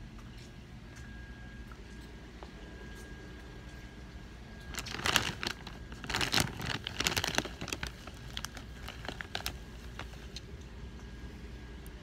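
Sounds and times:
handling noise rustling: 0:04.6 - 0:10.4.

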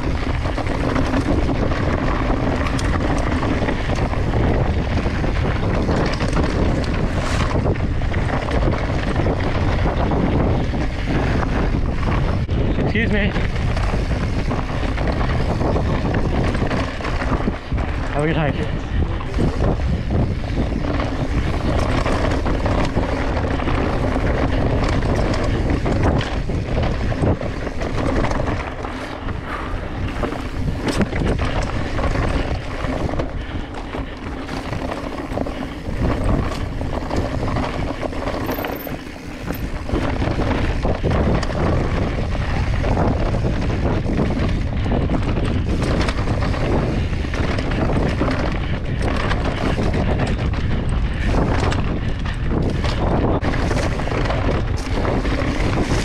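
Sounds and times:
bike knocking and rattling: 0:00.0 - 0:56.0
bike tyres rolling over dirt: 0:00.0 - 0:56.0
wind on microphone: 0:00.0 - 0:56.0.

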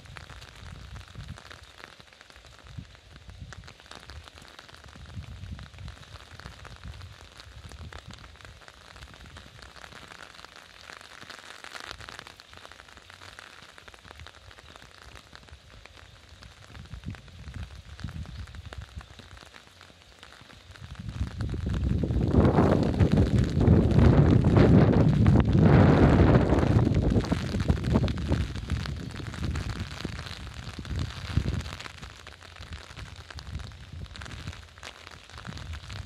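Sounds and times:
rain hiss: 0:00.0 - 0:36.0
low rumbles: 0:21.0 - 0:31.8.

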